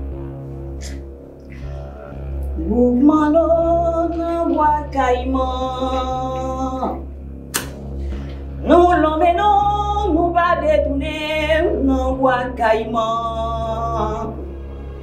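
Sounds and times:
low backing drone: 0.0 - 15.0
sharp click: 7.5 - 7.9.

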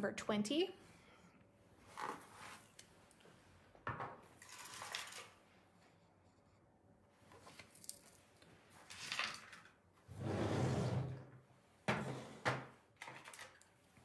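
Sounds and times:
items clinking and rustling: 4.4 - 5.4.

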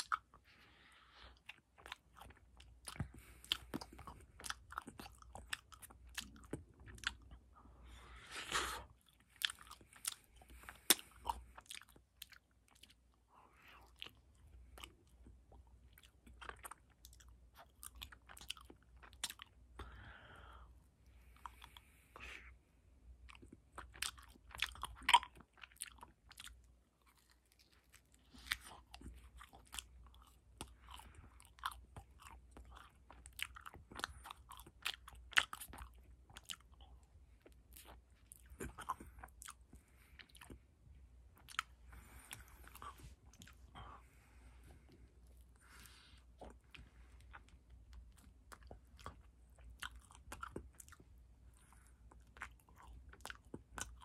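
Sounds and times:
biting and chewing: 23.3 - 40.6, 44.7 - 54.0.

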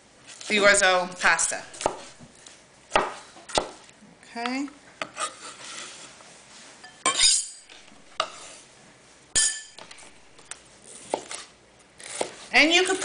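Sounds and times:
food scraped off cutting board: 5.1 - 6.2, 7.1 - 8.7
knife clinking against glass bowl: 6.8 - 8.4, 9.4 - 9.9.

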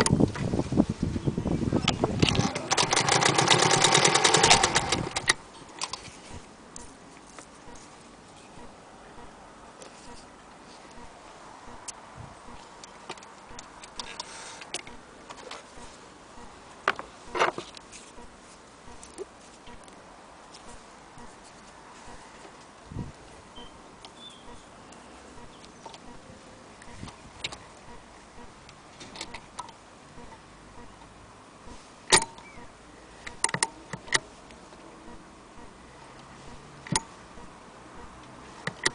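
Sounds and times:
sewing machine parts clicking: 2.2 - 6.0.

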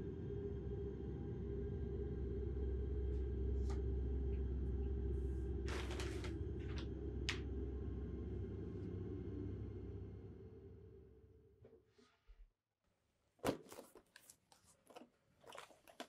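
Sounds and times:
low hum: 0.0 - 11.7.

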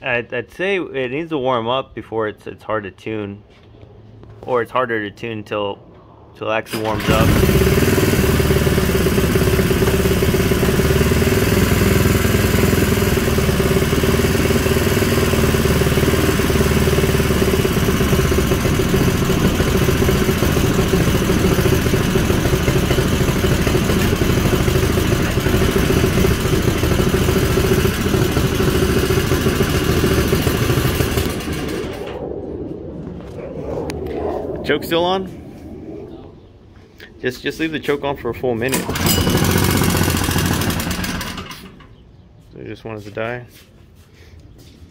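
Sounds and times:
single-cylinder engine running: 6.7 - 32.0, 38.7 - 42.0.

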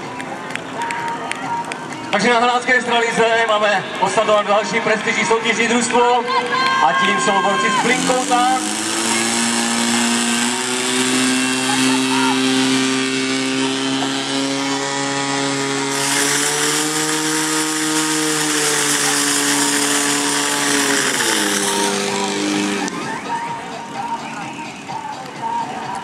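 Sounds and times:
pump engine running: 7.6 - 24.8.

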